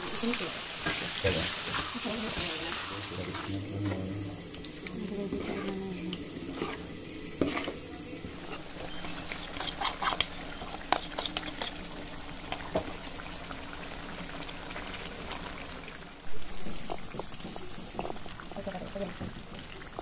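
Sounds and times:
curry sizzling in a pan: 0.0 - 20.0
utensil clinking and scraping: 4.6 - 11.8.

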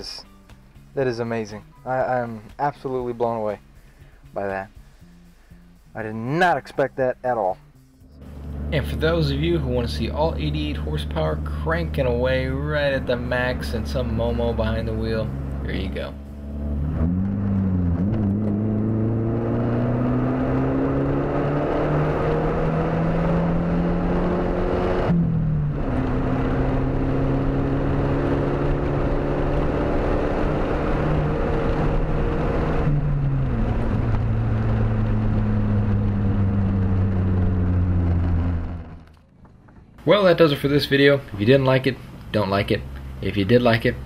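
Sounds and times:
car engine at full throttle: 8.1 - 39.3.

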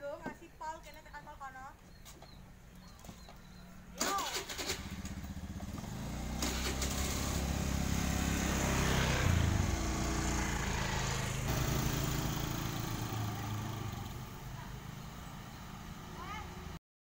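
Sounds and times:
motor scooters riding past: 4.0 - 16.8.

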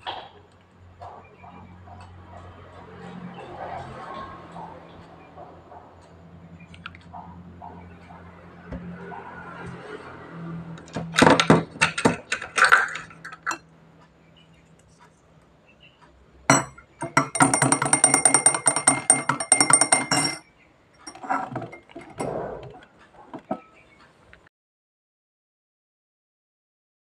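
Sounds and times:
teaspoon clinking against glass cup: 16.5 - 20.4
cup handled on saucer: 21.1 - 23.6.

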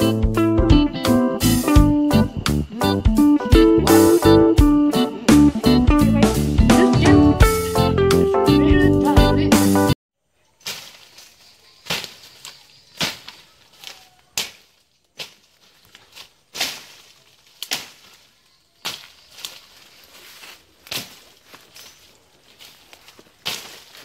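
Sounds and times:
footsteps crunching dry leaves: 10.4 - 24.0.

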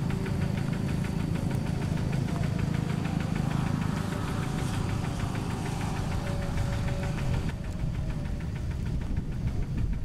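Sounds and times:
diesel engine knocking: 0.0 - 10.0.

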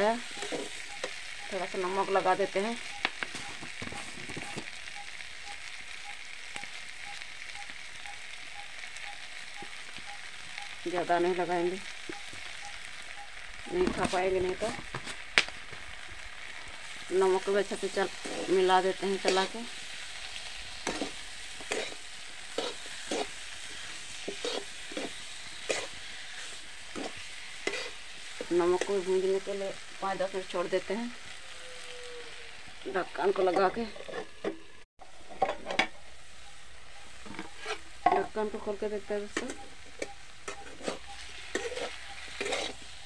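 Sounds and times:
vegetables sizzling in hot oil: 0.0 - 43.0
metal spatula scraping pan: 0.2 - 1.2, 20.2 - 28.9, 33.4 - 34.6, 37.2 - 38.3, 39.4 - 43.0.

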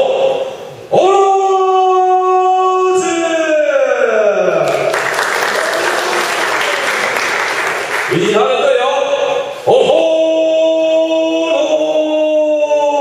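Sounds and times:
crowd applauding and cheering: 4.6 - 8.4.

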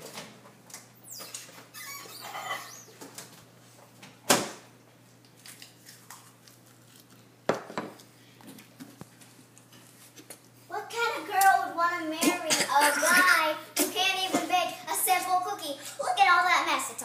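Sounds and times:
faint squeaks: 1.0 - 3.0.

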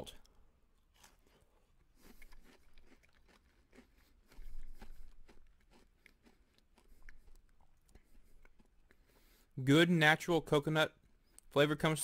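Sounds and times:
chewing crunchy cookie: 0.2 - 9.5.

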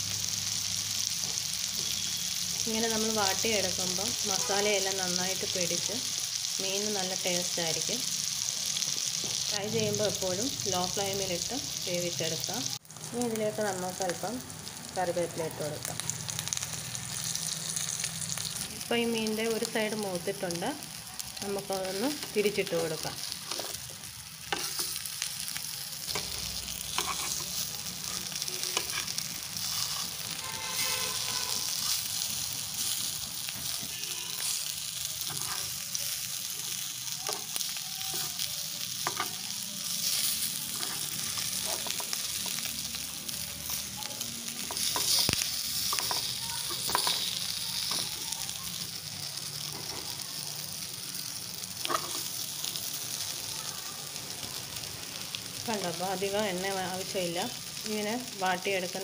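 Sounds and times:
fish sizzling in oil: 0.0 - 59.0
metal turner scraping pan: 26.9 - 31.2, 35.3 - 35.8, 40.0 - 42.1, 44.6 - 47.3.

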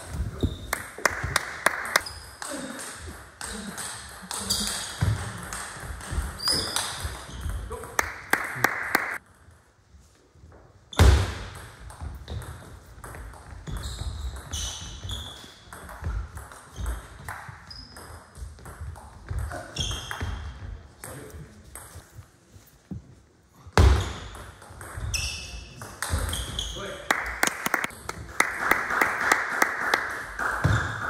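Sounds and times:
shoe squeaks on floor: 0.0 - 0.8, 2.0 - 2.4, 4.4 - 5.1, 6.3 - 7.8, 13.6 - 15.9, 16.7 - 18.4, 19.4 - 20.7, 25.0 - 27.0.

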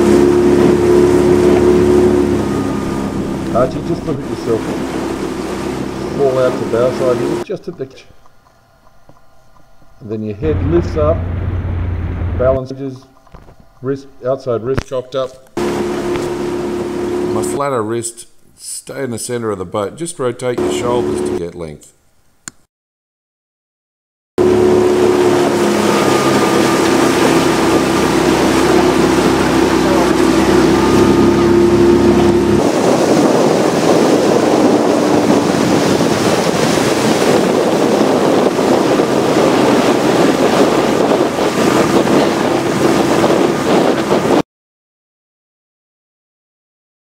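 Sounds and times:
motorboat engine running: 0.0 - 7.4, 10.4 - 12.6, 15.6 - 17.7, 20.6 - 21.4, 24.4 - 44.4
rush of wind and water: 0.0 - 7.4, 15.6 - 17.6, 24.4 - 44.4
wind buffeting microphone: 24.4 - 44.4.

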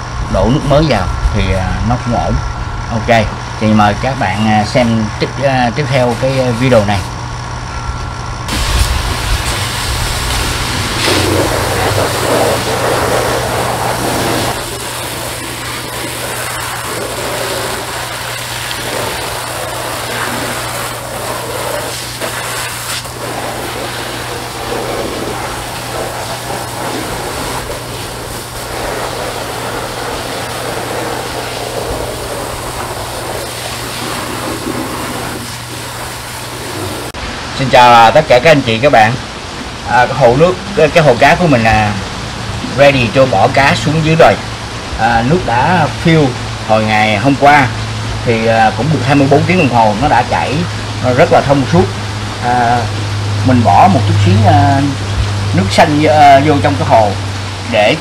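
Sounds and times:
pressure washer motor hum: 2.4 - 37.6, 38.6 - 58.0
water spray hissing on rocks: 8.5 - 37.2.

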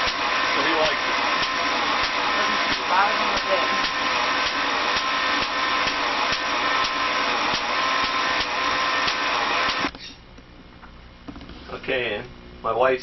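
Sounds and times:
electric motor and belt running: 0.0 - 10.0
low hum: 1.0 - 13.0.

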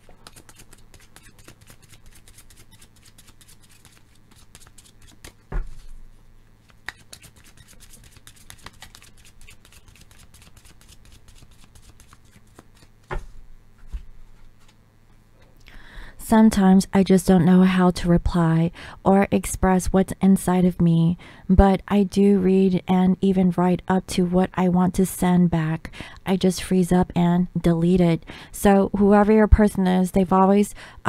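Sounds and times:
cards being shuffled: 0.0 - 6.0, 6.6 - 14.8.

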